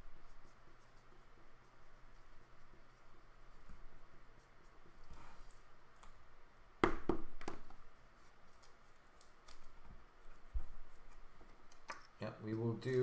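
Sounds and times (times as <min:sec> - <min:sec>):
trading cards rustling: 0:08.4 - 0:13.0.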